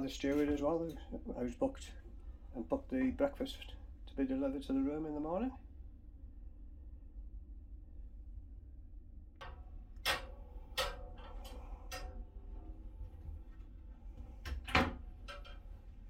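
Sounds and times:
steady low hum: 0.0s - 16.0s
door and fittings clicking: 9.4s - 13.3s, 14.2s - 15.8s.

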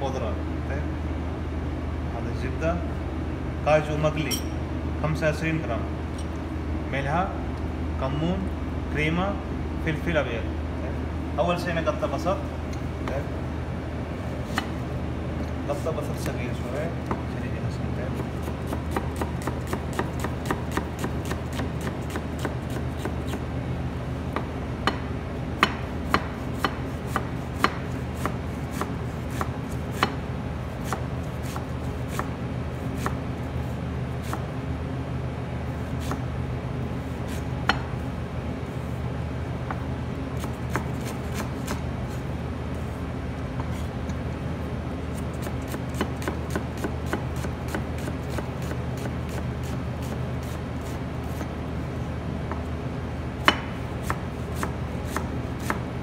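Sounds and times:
knife chopping on plastic board: 18.2s - 23.4s, 45.4s - 50.6s.

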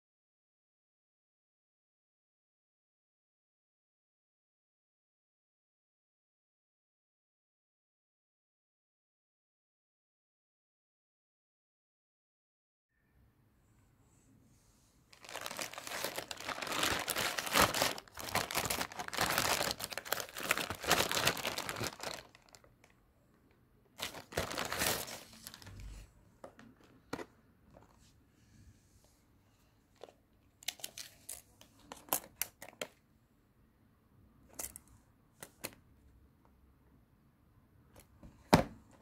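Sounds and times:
plastic bag tearing and crinkling: 15.2s - 22.6s, 24.0s - 25.9s.

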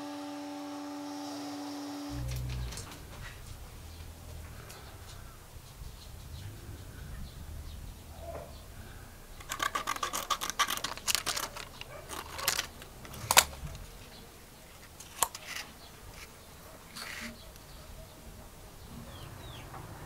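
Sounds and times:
scissors snipping plastic: 9.4s - 13.8s
plastic sheet crackling: 9.4s - 14.1s.

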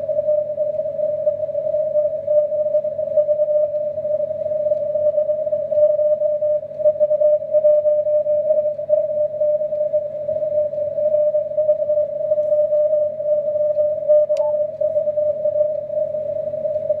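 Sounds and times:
short click: 14.3s - 14.6s.

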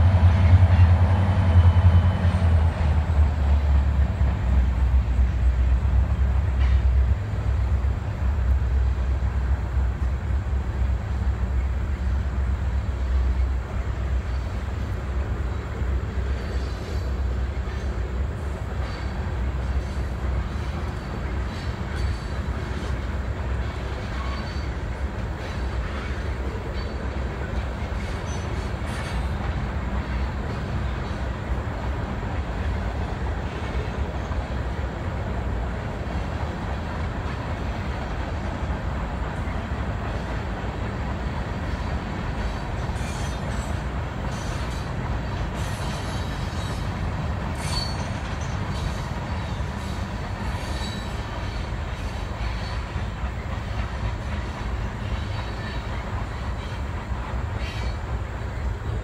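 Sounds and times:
train wheels rumbling on rail: 0.0s - 59.0s
high-pitched wheel squeals: 47.6s - 51.3s.

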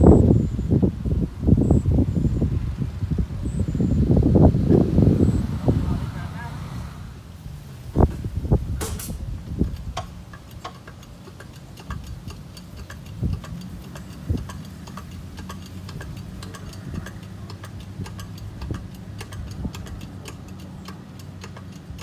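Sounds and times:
diesel engine idling: 4.2s - 22.0s
fast light ticking: 9.0s - 22.0s.

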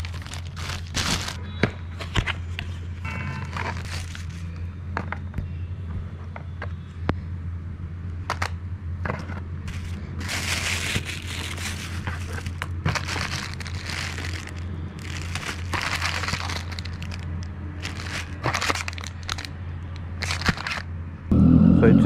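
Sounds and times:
plastic bags crinkling: 0.0s - 1.4s, 3.5s - 4.5s, 9.7s - 20.9s
low hum: 20.9s - 22.0s.

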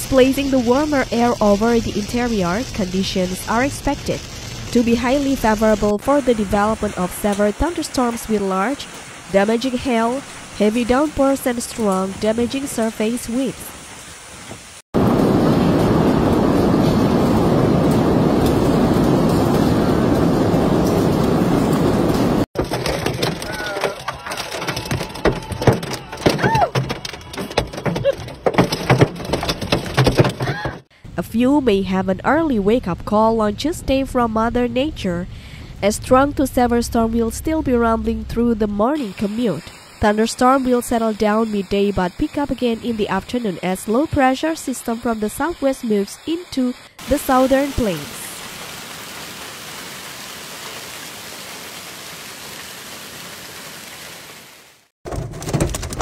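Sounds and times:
hail and heavy rain pelting: 14.6s - 30.8s
hail clattering on car roof: 22.6s - 30.8s, 55.1s - 56.0s.

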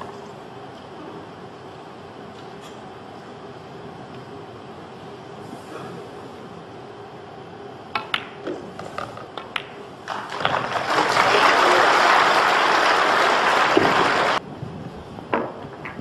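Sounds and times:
pool balls clicking: 7.9s - 14.4s
audience applause: 10.1s - 14.4s.

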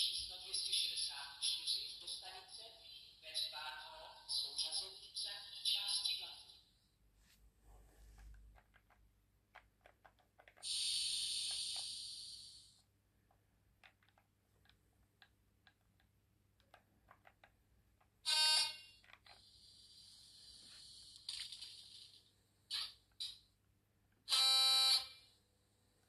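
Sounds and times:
compressed air hissing: 10.6s - 12.7s.

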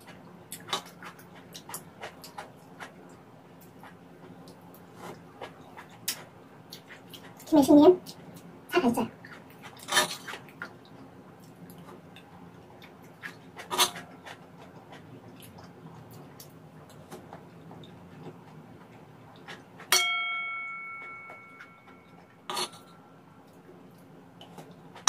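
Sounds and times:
metal spoon scraping a pan: 9.8s - 10.3s, 13.6s - 14.1s, 22.5s - 22.9s
ringing metallic clink: 19.9s - 22.8s.

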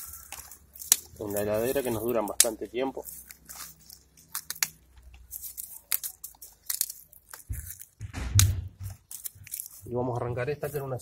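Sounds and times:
onion stalks tearing by hand: 0.0s - 11.0s
dull low thumps: 7.5s - 9.0s.

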